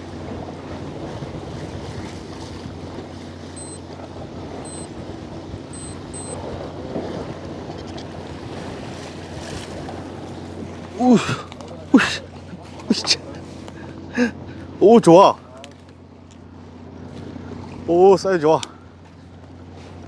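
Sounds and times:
water washing along hull: 0.0s - 15.2s
boat engine hum: 0.0s - 20.0s
short high electronic beeps: 3.6s - 3.8s, 4.7s - 4.9s, 5.8s - 6.4s.

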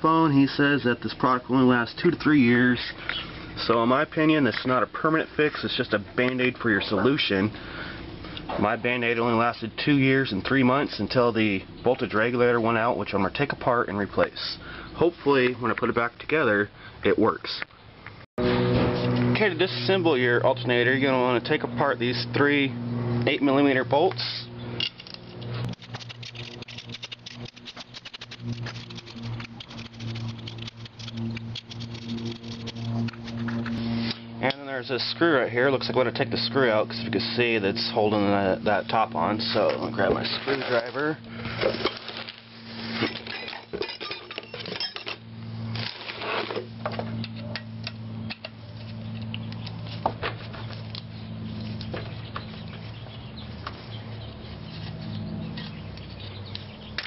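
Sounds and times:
steady low hum: 0.0s - 57.0s
screwdriver turning a screw: 25.1s - 33.8s.

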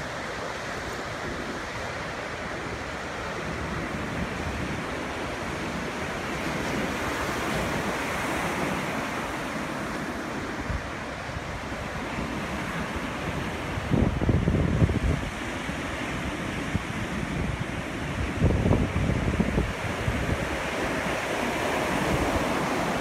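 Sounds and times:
surf crashing on a beach: 0.0s - 23.0s
wind rumbling on microphone: 0.0s - 23.0s.

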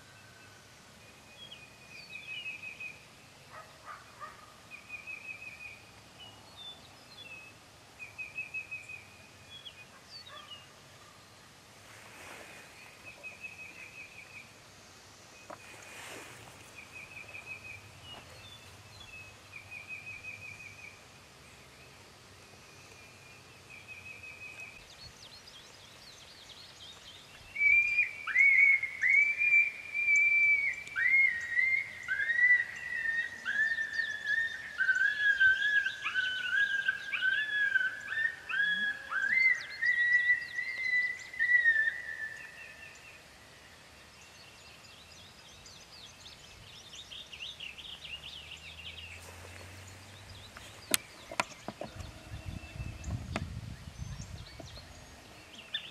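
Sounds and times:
soft swishes: 15.6s - 18.4s
coyote pup howling and yipping: 30.2s - 42.1s
songbird trilling: 46.9s - 55.9s.

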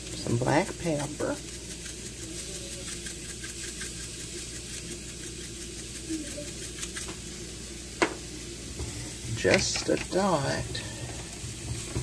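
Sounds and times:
pepper shaker rattling: 0.0s - 8.0s
low room hum: 0.0s - 12.0s.

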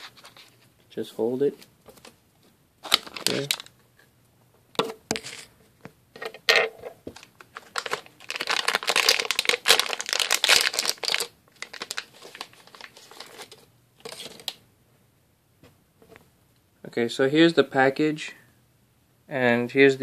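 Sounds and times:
plastic bag crinkling: 2.8s - 3.8s, 7.1s - 14.6s.

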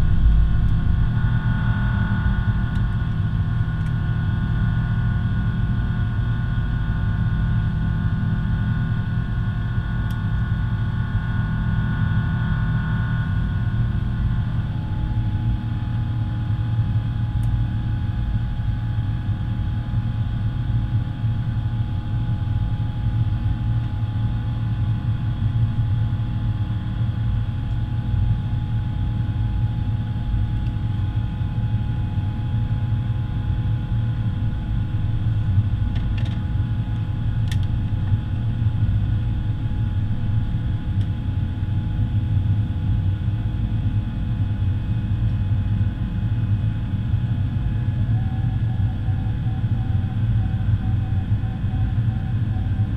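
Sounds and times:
airplane cabin rumble: 0.0s - 52.9s
faint whining tones: 47.6s - 52.9s.

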